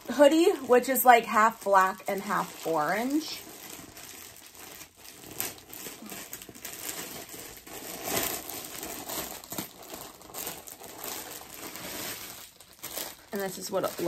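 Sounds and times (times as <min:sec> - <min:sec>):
packaging crinkling and rustling: 0:00.0 - 0:14.0.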